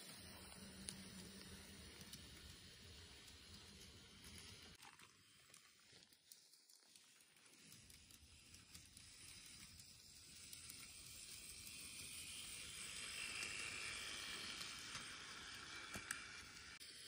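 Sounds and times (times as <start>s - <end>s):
model train rolling rumble: 0.0s - 5.4s, 6.3s - 17.0s.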